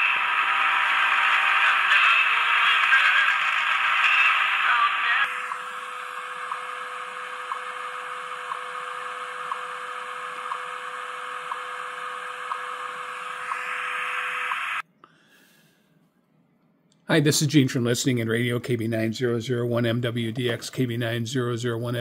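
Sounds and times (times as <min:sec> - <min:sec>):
radio static hiss: 0:00.0 - 0:07.8, 0:12.5 - 0:14.8
steady radio tone: 0:00.0 - 0:10.7, 0:12.3 - 0:14.8
time signal ticks: 0:06.4 - 0:06.7, 0:07.4 - 0:07.7, 0:08.3 - 0:13.6.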